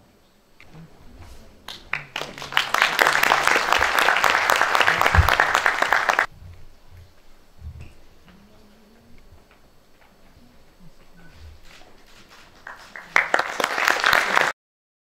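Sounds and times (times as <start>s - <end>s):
audience applauding: 1.5s - 6.3s, 12.1s - 14.6s.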